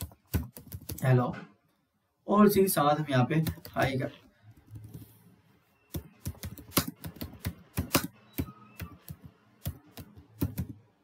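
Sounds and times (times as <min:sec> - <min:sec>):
typing on keyboard: 0:00.0 - 0:01.1, 0:03.4 - 0:04.0, 0:05.9 - 0:11.0.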